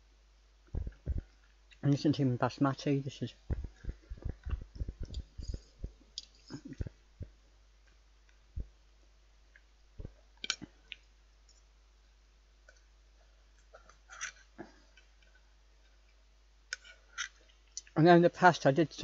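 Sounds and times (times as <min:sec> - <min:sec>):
soft low thumps: 0:00.7 - 0:01.4, 0:03.3 - 0:07.4, 0:08.5 - 0:08.8.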